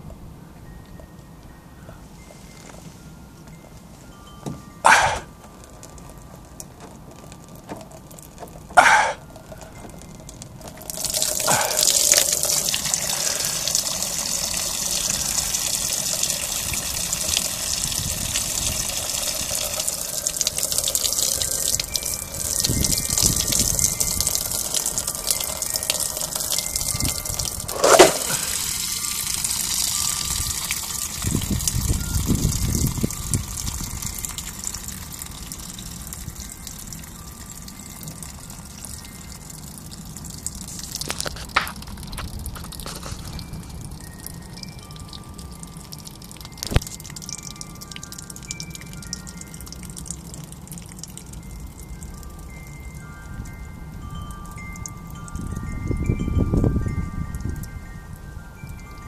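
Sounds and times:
drain plug sharp sounds: 4.8 - 5.3, 7.9 - 10.0, 24.3 - 31.2
water gushing and splashing: 10.7 - 31.7.

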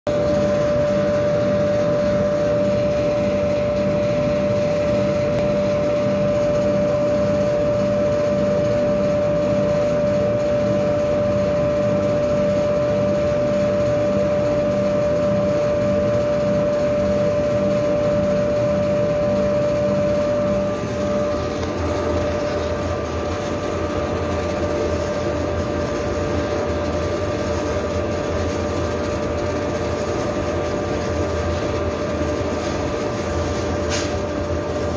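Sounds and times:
deeper machine hum: 0.1 - 34.9
laser engraver humming: 0.1 - 34.9
regular pulsing of engraver head: 15.4 - 34.9.

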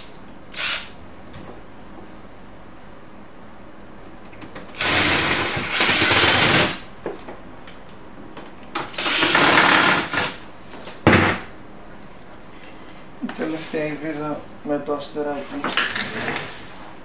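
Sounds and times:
cordless drill driving screws: 0.5 - 0.9, 4.8 - 6.8, 8.9 - 10.4.

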